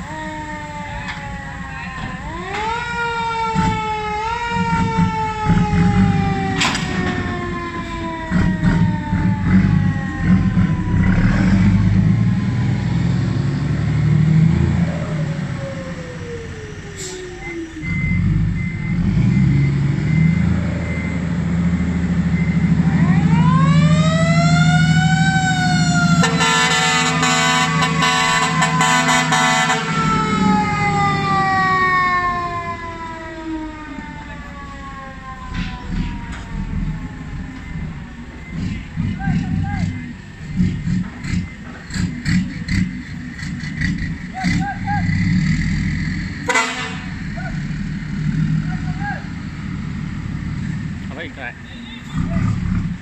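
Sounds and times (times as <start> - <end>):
diesel truck engine running: 4.1 - 53.0
loud air horn blast: 26.2 - 30.2, 46.4 - 47.2.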